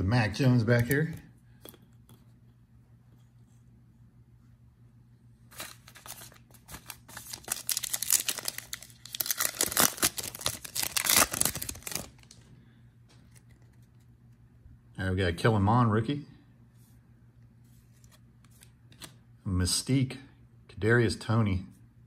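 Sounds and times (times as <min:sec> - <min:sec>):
foil wrapper tearing and crinkling: 0:05.6 - 0:12.4.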